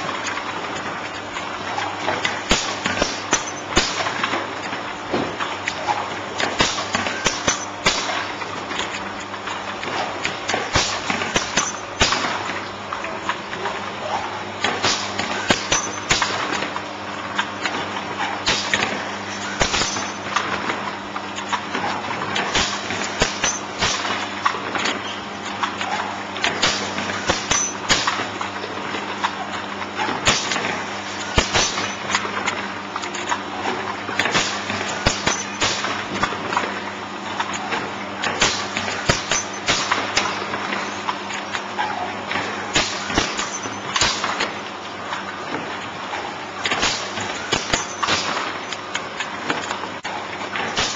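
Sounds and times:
machine clacks and knocks: 0.0s - 36.8s, 37.4s - 45.8s, 46.6s - 50.9s
machine mechanical hum: 0.0s - 50.9s.

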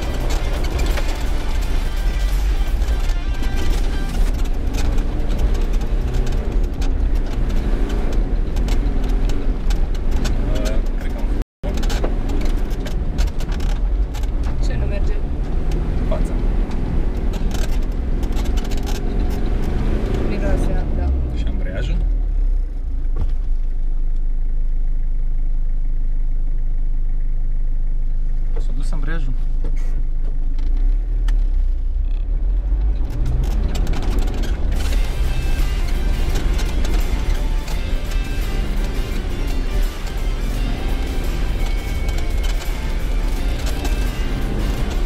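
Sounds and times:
music: 0.0s - 5.6s, 34.5s - 45.0s
knocks and rattles: 0.0s - 15.1s, 16.7s - 20.3s, 32.8s - 45.0s
engine running low hum: 0.0s - 45.0s
off-road vehicle rumbling: 0.0s - 45.0s.

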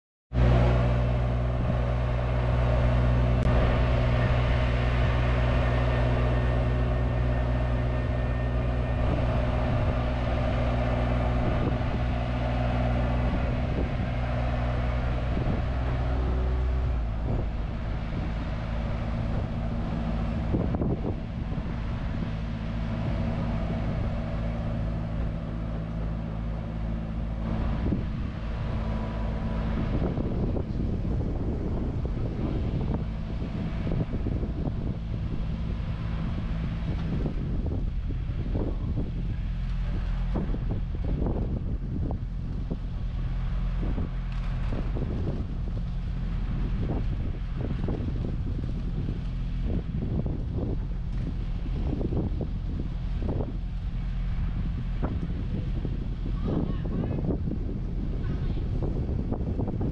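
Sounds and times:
crane engine humming: 0.3s - 59.9s.

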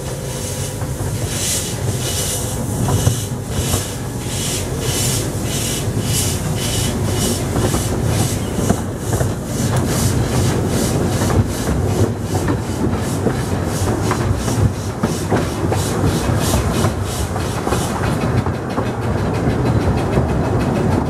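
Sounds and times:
carriage wheels rumbling on track: 0.0s - 21.0s
steam locomotive exhaust chuffs: 0.0s - 21.0s.

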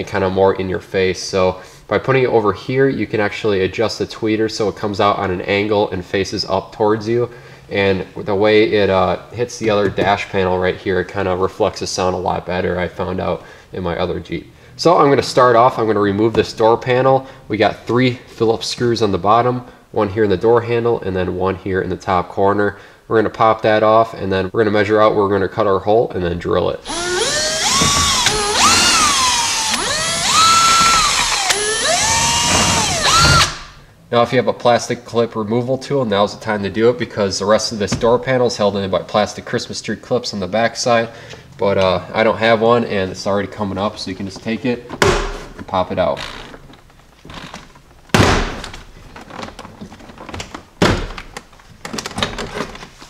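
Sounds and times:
cordless drill motor whine: 26.8s - 33.7s
sharp thunks: 45.0s - 45.6s, 48.1s - 48.8s.

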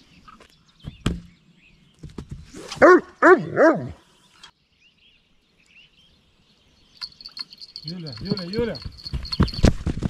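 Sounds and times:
dog barking: 2.8s - 4.0s.

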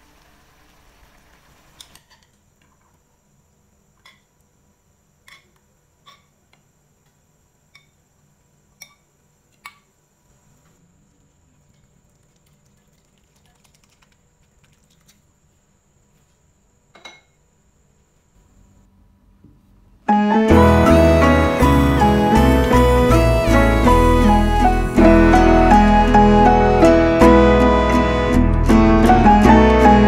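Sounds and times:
background music: 20.1s - 30.0s.

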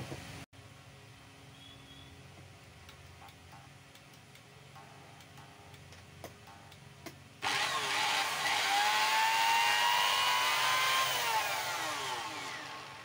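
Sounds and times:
electric motor whine: 7.4s - 13.0s.

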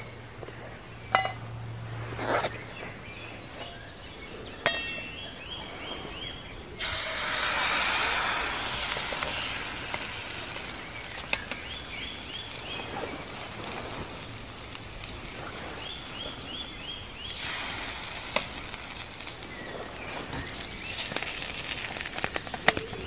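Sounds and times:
bird chirping: 0.0s - 1.4s, 2.4s - 6.8s, 9.0s - 17.6s, 18.5s - 23.0s
fire popping: 6.7s - 23.0s
batter sizzling in frying pan: 6.8s - 23.0s.

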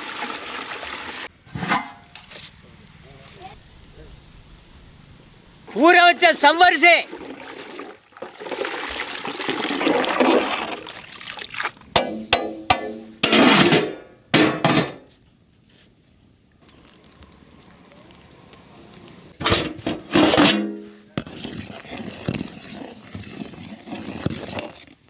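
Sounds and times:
water pouring into metal pot: 0.0s - 1.3s, 6.2s - 11.9s
metal lid clattering: 1.5s - 2.1s, 12.0s - 15.0s, 19.4s - 21.0s.

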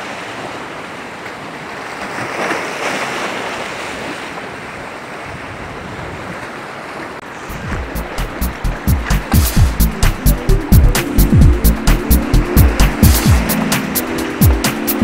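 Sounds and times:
sea waves breaking on rocks: 0.0s - 10.0s
wind on microphone: 5.2s - 6.4s, 7.3s - 9.8s
music with strong beat: 7.5s - 15.0s.

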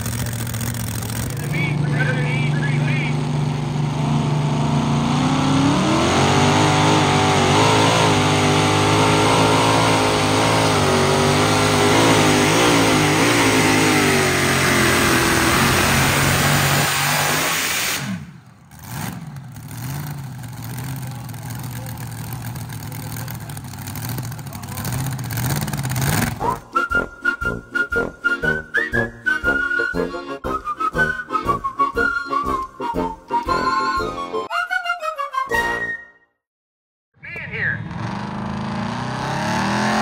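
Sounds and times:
quieter engine running: 0.0s - 17.0s, 18.0s - 34.5s
engine straining under load: 0.0s - 29.8s.

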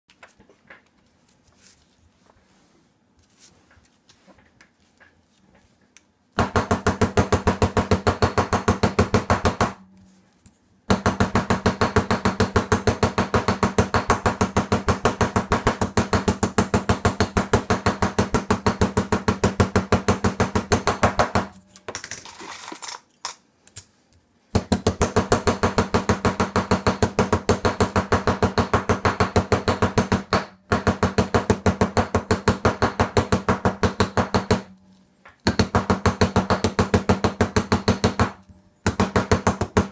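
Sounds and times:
quiet handling sounds: 0.1s - 6.4s, 9.9s - 10.8s.

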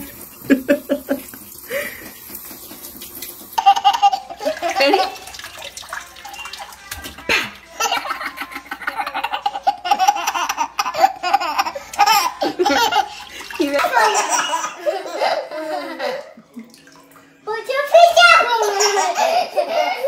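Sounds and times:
baby laughing: 3.6s - 5.7s, 7.2s - 16.6s, 18.1s - 20.0s.

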